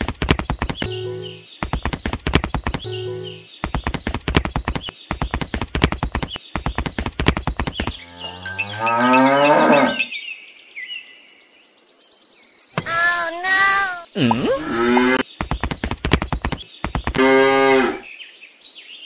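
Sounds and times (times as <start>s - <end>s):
clip-clop of hoofbeats: 0.0s - 3.0s, 3.6s - 8.0s, 15.2s - 17.3s
cow mooing: 8.2s - 10.1s, 17.2s - 18.0s.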